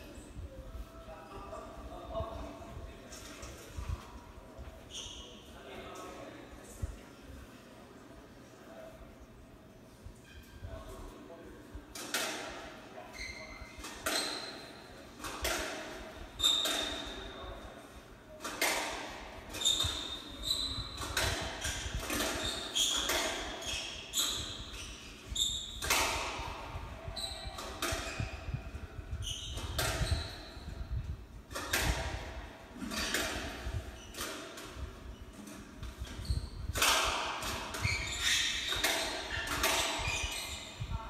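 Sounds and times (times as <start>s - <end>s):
shoes squeaking on wooden floor: 13.1s - 14.9s, 19.5s - 25.9s, 37.8s - 40.9s
squash ball hits echoing: 36.7s - 37.9s.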